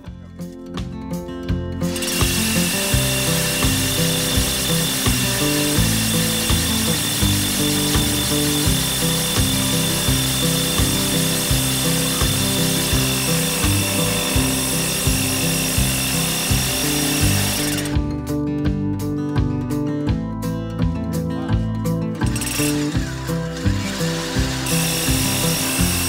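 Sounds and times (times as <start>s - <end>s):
background music with beat: 0.0s - 26.0s
rotary hammer drilling brick: 1.8s - 18.0s, 22.2s - 26.0s.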